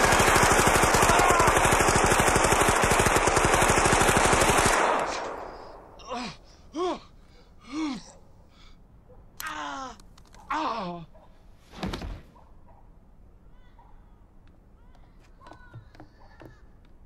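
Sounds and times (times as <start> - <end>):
submachine gun firing burst: 0.0 - 5.4
man groaning in pain: 1.0 - 1.6, 6.0 - 8.1, 9.4 - 11.1.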